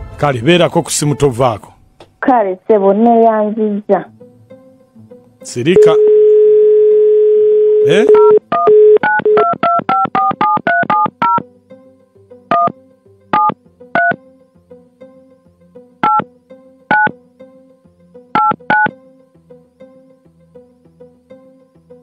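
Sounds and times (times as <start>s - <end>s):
quiet background music: 0.0s - 22.0s
telephone keypad tones: 5.8s - 11.4s, 12.5s - 12.7s, 13.4s - 14.2s, 16.0s - 16.2s, 16.9s - 17.1s, 18.4s - 18.9s.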